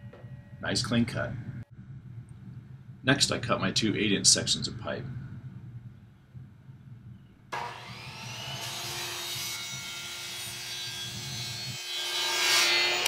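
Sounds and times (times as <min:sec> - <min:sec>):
miter saw motor whine: 0:07.6 - 0:10.2
saw blade cutting plastic pipe: 0:07.6 - 0:13.0.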